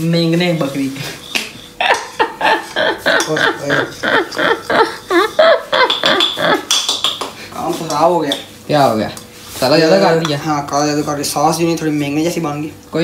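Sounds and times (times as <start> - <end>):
people talking and laughing: 0.9 - 7.1.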